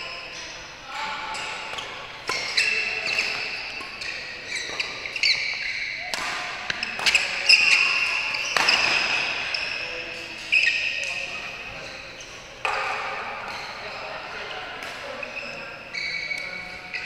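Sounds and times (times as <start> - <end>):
shoes squeaking on court: 0.0 - 17.0
racket hitting shuttlecock: 1.0 - 11.3, 12.6 - 13.5.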